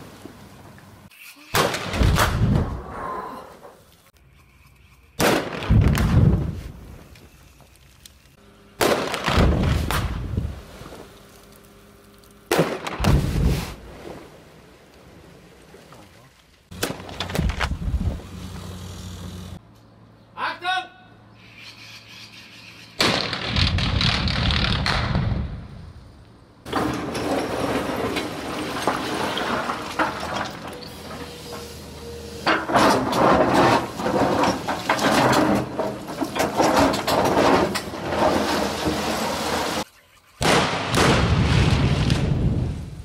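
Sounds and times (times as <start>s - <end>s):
rock blast thud and rumble: 12.8s - 13.7s, 40.4s - 43.0s.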